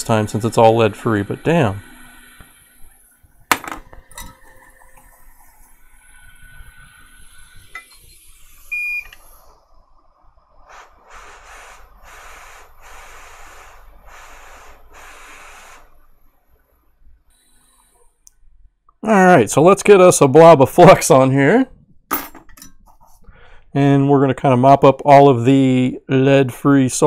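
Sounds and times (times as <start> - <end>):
hissing bursts of air: 10.5 - 16.3.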